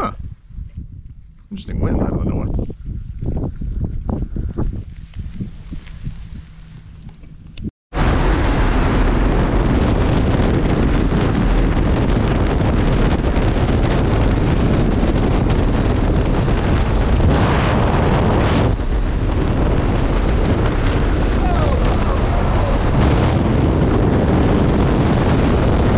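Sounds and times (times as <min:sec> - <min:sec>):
aircraft engine noise: 0:01.4 - 0:25.9
wind rushing: 0:01.7 - 0:25.9.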